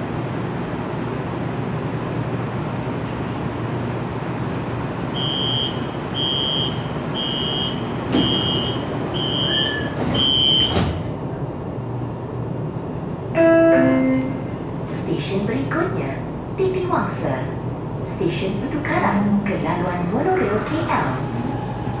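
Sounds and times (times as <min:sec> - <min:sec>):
train hum: 0:00.0 - 0:22.0
high warning beeps: 0:05.2 - 0:10.8
train doors shutting with a thump: 0:05.2 - 0:12.2.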